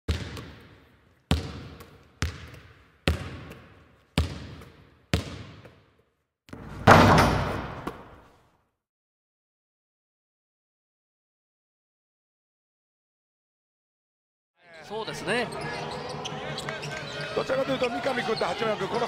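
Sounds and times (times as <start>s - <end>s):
basketball bouncing on hard court: 0.1s - 5.8s.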